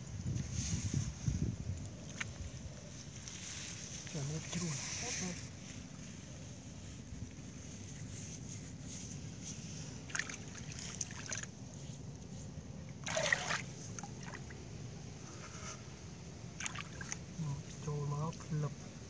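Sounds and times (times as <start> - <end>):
steady low rumble: 0.0 - 19.0
muddy water splashing: 9.9 - 12.3, 12.9 - 14.8, 16.4 - 18.5.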